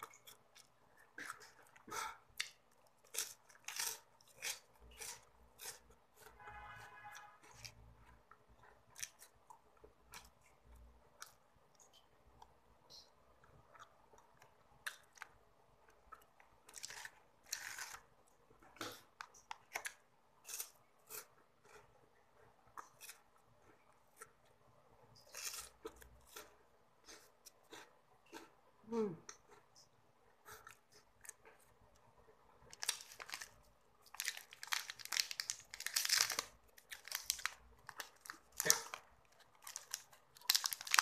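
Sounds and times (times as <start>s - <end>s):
person chewing crunchy snack: 0.0s - 6.4s, 16.1s - 21.9s, 25.2s - 28.6s, 32.6s - 41.0s.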